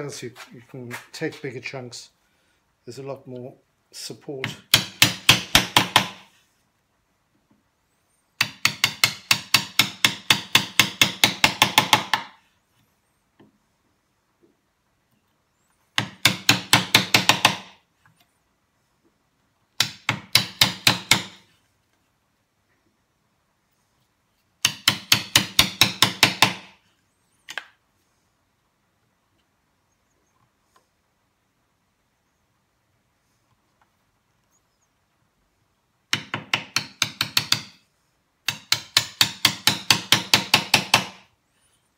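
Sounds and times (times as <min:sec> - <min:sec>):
mallet striking a chisel: 0:08.4 - 0:12.3, 0:24.6 - 0:26.7, 0:38.5 - 0:41.1.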